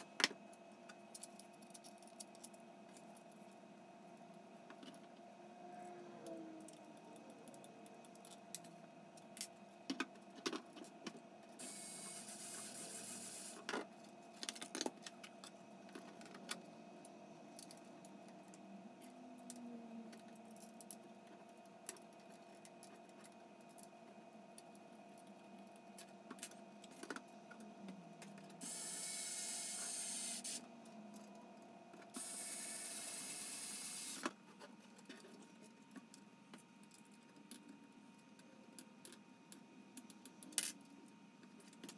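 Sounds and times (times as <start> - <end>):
electric screwdriver motor: 11.6 - 13.6, 28.6 - 30.6, 32.2 - 34.2.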